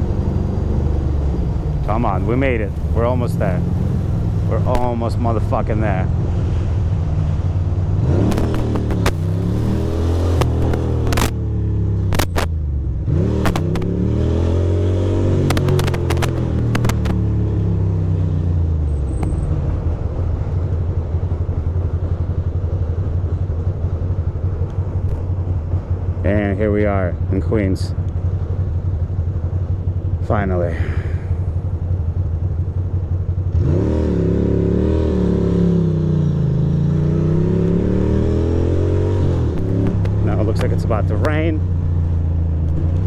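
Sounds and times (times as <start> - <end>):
motorcycle engine revving: 0.0 - 43.0
sharp clicks: 12.1 - 12.6, 13.4 - 13.9, 15.4 - 17.2.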